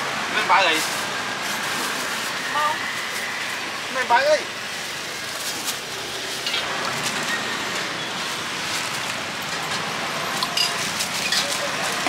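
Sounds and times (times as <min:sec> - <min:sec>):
traffic hiss: 0:00.0 - 0:12.0
plastic bags rustling: 0:00.6 - 0:12.0
ladle clinking metal bowls: 0:10.4 - 0:12.0.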